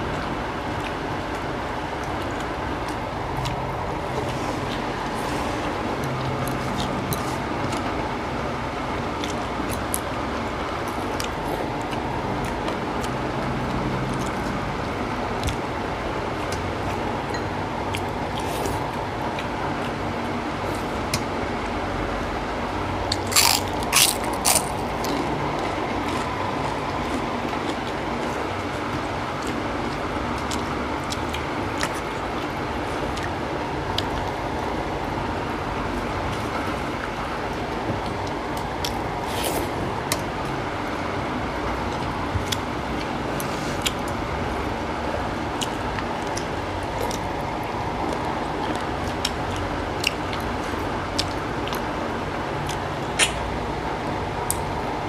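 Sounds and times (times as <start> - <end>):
wet mouth smacks and chewing: 52.7 - 53.4.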